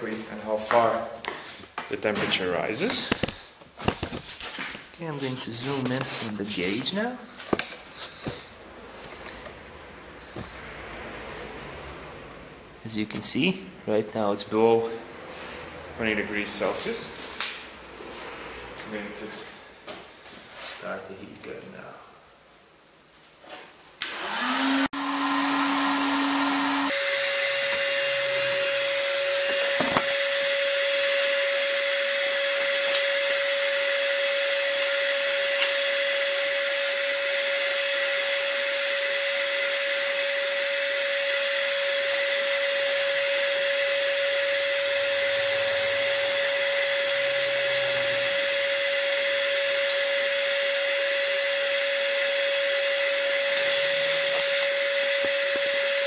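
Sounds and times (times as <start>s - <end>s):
heat gun fan whine: 24.0s - 56.0s.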